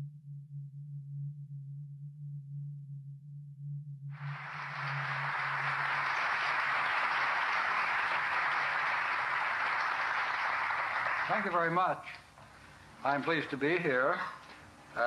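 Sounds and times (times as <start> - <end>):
audience applause: 4.2 - 12.0.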